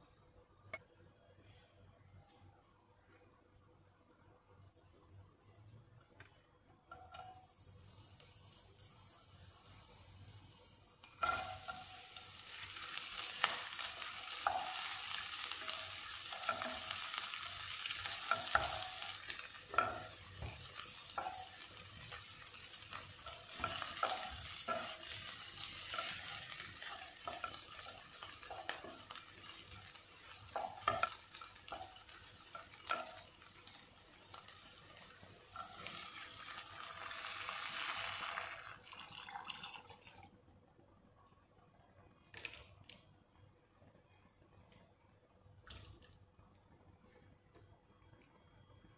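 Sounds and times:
spatula scraping and tapping pan: 6.2 - 7.6, 11.0 - 37.2
onion and garlic sizzling in oil: 6.8 - 39.2.

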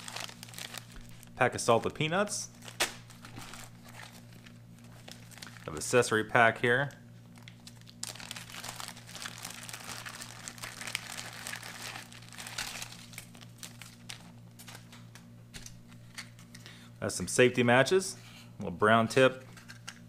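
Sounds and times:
plastic bag crinkling: 0.0 - 1.9, 2.5 - 6.0, 7.3 - 15.0.

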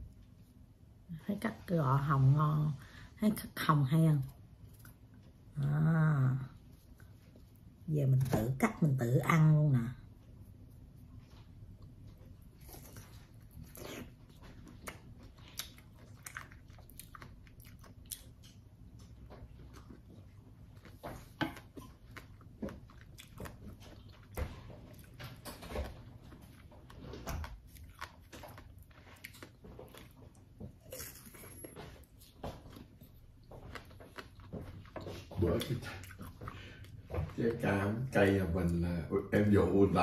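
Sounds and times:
person chewing orange: 10.4 - 38.8.

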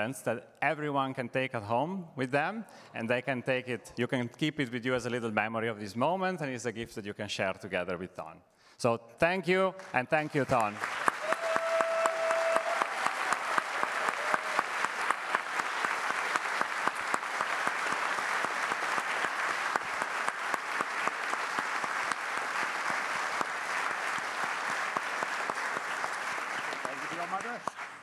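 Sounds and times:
audience applauding: 10.2 - 28.0.

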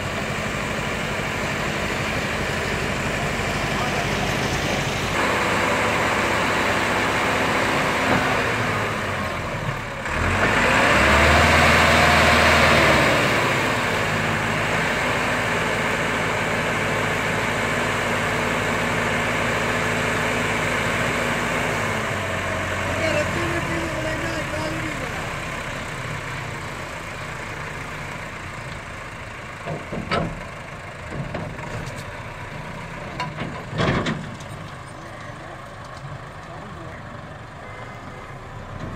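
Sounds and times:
tractor diesel engine running: 0.0 - 38.9.

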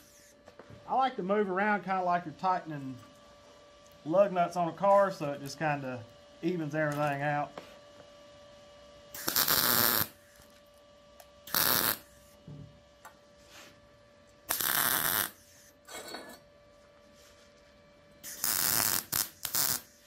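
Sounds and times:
steady electrical hum: 0.0 - 20.0
welding arc crackle: 9.1 - 10.5, 11.4 - 12.2, 14.5 - 15.7, 18.2 - 20.0.

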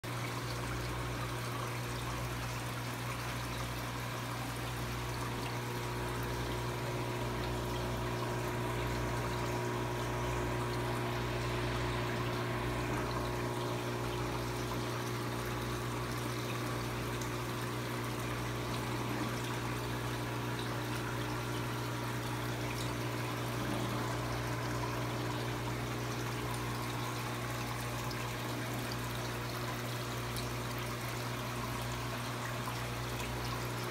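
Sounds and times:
water trickling: 0.0 - 33.9
low hum: 5.4 - 17.2.

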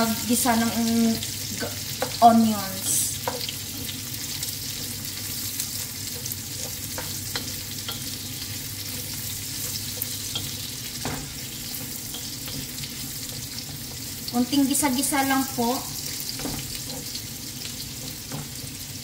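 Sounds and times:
vegetables sizzling in oil: 0.0 - 19.0
spatula tapping and scraping pan: 1.7 - 2.2, 3.2 - 14.3, 16.0 - 18.9.

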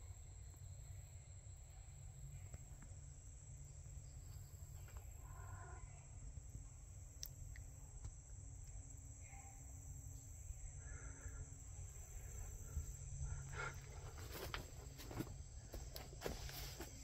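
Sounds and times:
steady low rumble: 0.4 - 17.0
light knocks and rustles: 13.8 - 17.0.

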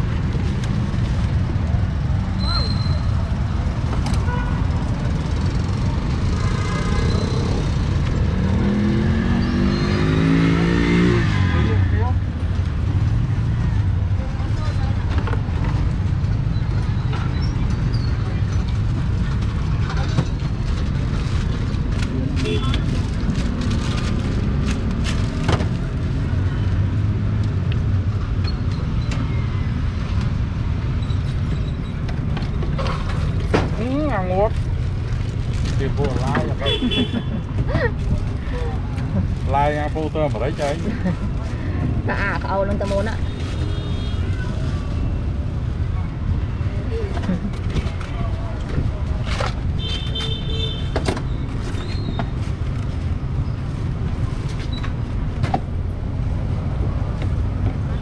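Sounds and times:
road traffic rumbling: 0.0 - 58.0
vehicle engine accelerating: 5.6 - 12.0.

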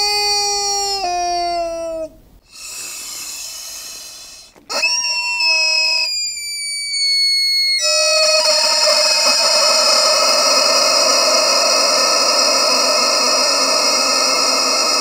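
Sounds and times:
rubber chicken wheezing: 0.0 - 7.2, 7.8 - 15.0
rubber chicken squawking: 4.5 - 15.0.

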